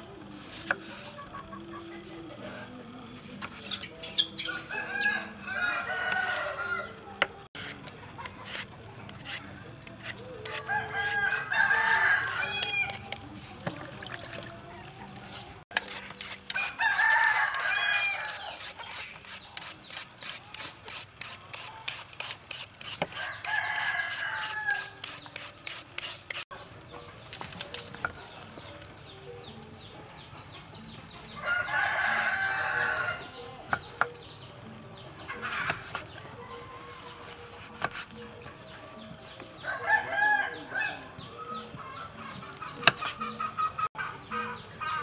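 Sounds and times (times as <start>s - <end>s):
roosters crowing: 4.1s - 7.1s, 10.4s - 13.1s, 16.5s - 19.0s, 23.1s - 25.0s, 31.3s - 33.8s, 35.3s - 45.0s
peeler scraping fruit: 7.6s - 13.3s, 15.1s - 26.5s, 36.8s - 38.2s.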